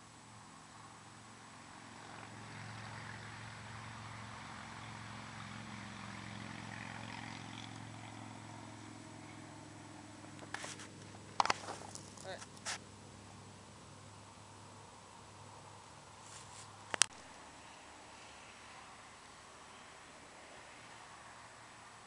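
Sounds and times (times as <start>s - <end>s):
distant engine droning: 0.0s - 22.0s.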